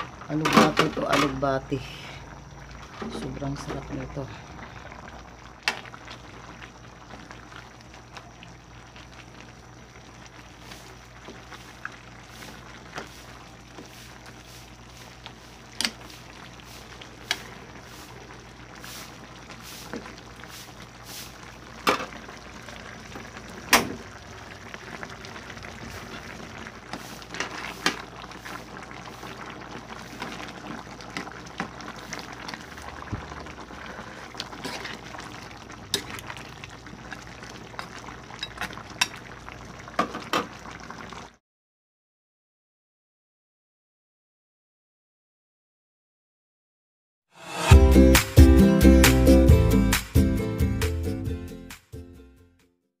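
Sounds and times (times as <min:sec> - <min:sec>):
broth bubbling in a pan: 0:00.0 - 0:41.4.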